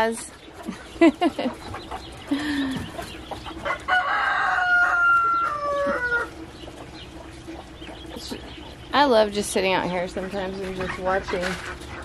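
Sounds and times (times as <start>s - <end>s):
rooster crowing: 3.6s - 6.4s.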